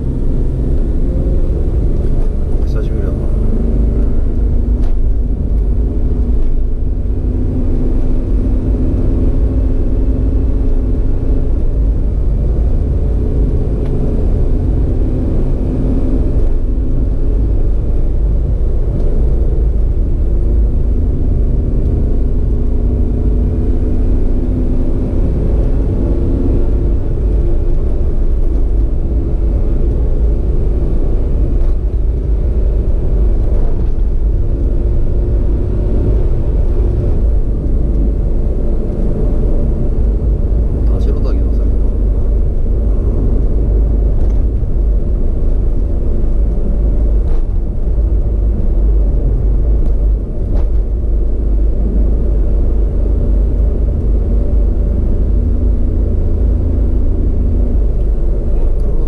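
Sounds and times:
vehicle engine running: 0.0 - 59.0
wind and road noise: 0.0 - 59.0.

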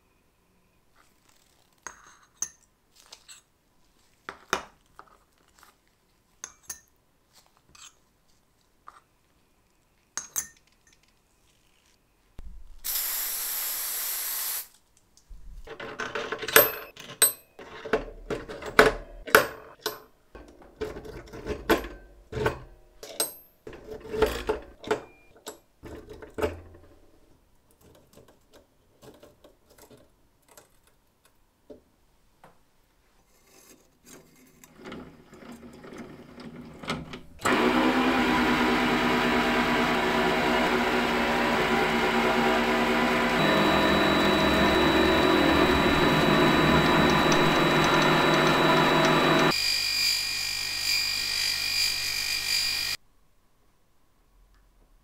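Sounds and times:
burst of hiss: 12.8 - 14.8
metal lathe running: 37.5 - 49.6, 50.9 - 53.0.

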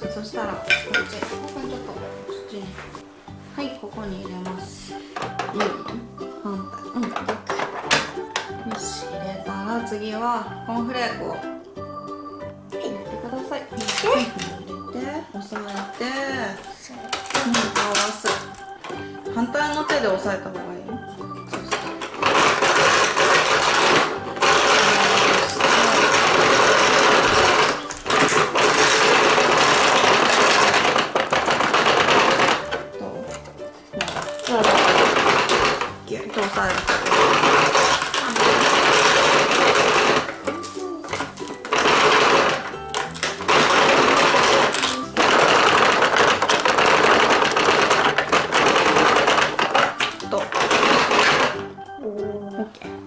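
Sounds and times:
plastic crank rattling grind: 21.7 - 33.4, 34.0 - 51.7.

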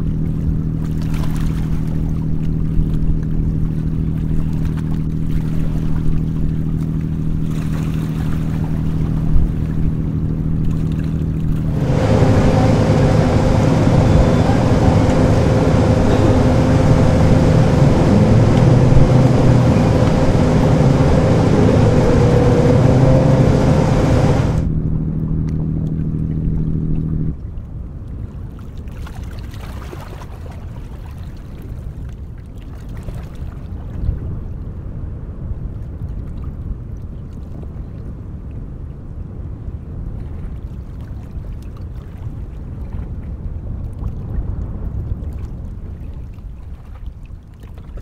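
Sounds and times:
water wash: 0.0 - 24.7
low engine rumble: 0.0 - 28.4
water noise: 0.0 - 38.6
wind noise: 11.5 - 24.9
ship diesel engine droning: 11.6 - 27.4.

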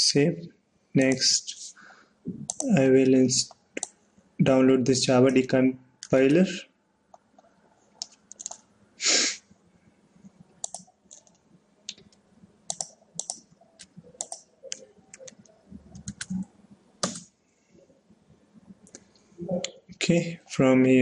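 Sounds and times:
keyboard keys clicking: 2.5 - 2.8, 8.0 - 8.6, 10.6 - 17.3
mouse buttons clicking: 10.6 - 11.3, 11.9 - 16.4.

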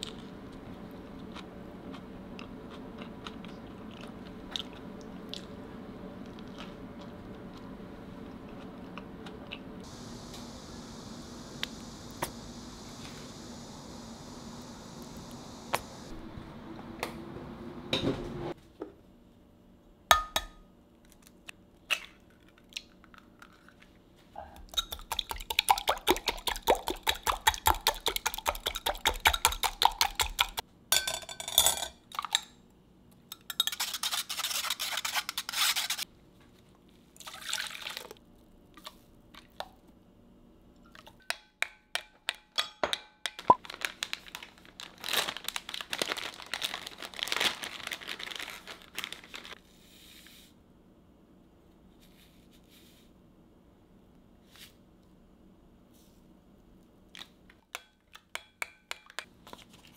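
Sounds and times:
rhythmic stirring in a bowl: 24.6 - 30.6
utensils clinking on dishes: 31.0 - 32.5, 33.3 - 34.2.

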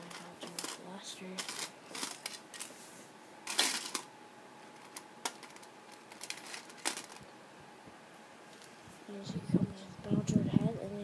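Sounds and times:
plastic parts clicking and rustling: 0.0 - 2.7, 3.4 - 7.3.

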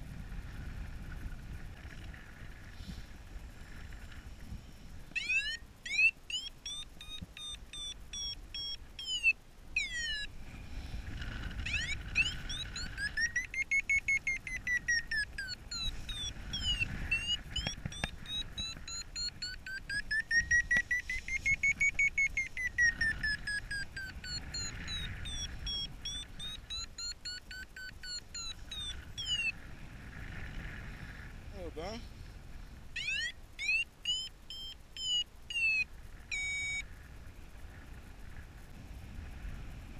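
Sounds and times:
wind rumble on microphone: 0.0 - 5.2, 9.7 - 27.1, 28.4 - 33.0, 35.8 - 39.9
variometer beeping in fast pulses: 5.0 - 10.4, 11.5 - 29.6, 32.9 - 37.0.

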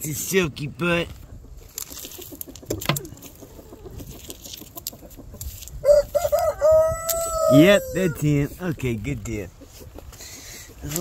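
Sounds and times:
chickens clucking: 0.0 - 11.0
rooster crowing: 5.8 - 8.3.

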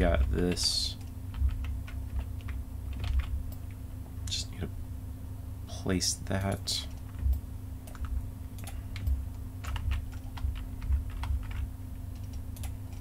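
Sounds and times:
steady low hum: 0.0 - 13.0
computer keyboard keystrokes: 0.1 - 3.7, 6.5 - 13.0.

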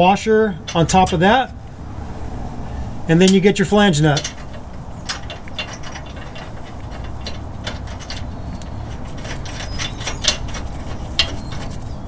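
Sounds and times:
steady low hum: 0.0 - 12.0
metal nut clicking and scraping: 0.6 - 1.3, 3.2 - 12.0.

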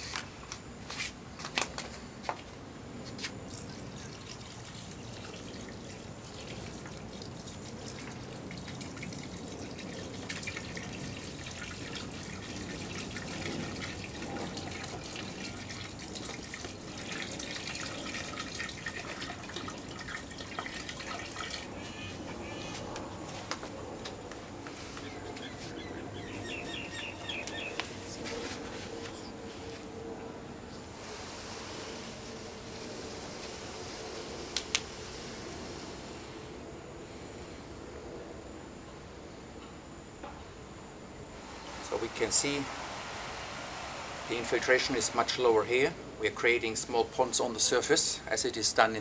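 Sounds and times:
water trickling onto sand: 3.4 - 21.8.

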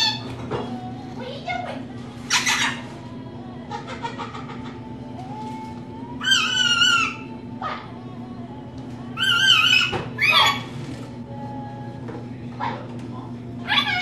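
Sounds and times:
harsh high-pitched bird call: 0.0 - 0.2, 2.3 - 2.9, 6.2 - 7.3, 9.2 - 10.7
faint bird chatter: 2.3 - 2.9.

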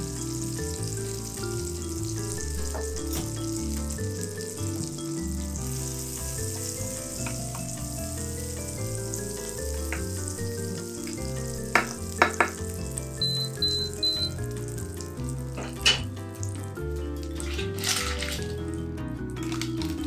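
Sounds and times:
garlic and butter sizzling in pan: 0.0 - 16.7
background music: 0.0 - 20.0
wooden spatula knocking on pan: 11.8 - 12.6
short high beeps: 13.2 - 14.4.

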